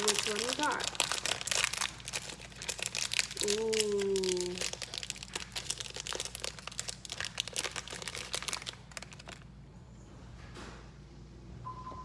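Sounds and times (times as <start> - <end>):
packaging crinkling: 0.0 - 9.5.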